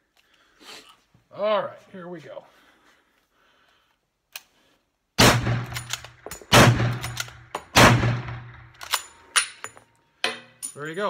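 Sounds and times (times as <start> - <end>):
rifle shots with echo: 5.2 - 8.7
rifle bolt metallic clicks: 5.6 - 7.8, 8.5 - 9.8.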